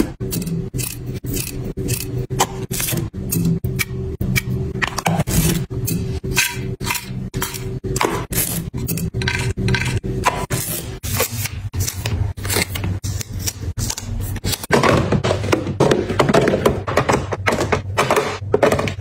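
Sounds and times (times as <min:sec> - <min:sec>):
steady low hum: 0:00.0 - 0:19.0
plastic boxes clicking and scraping: 0:13.8 - 0:19.0.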